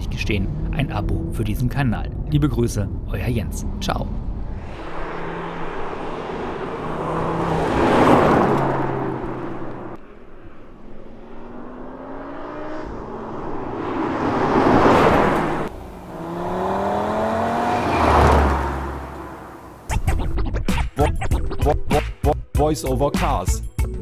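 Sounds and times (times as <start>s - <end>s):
road and wind hiss: 0.0s - 19.9s
car engine accelerating past: 4.5s - 19.9s.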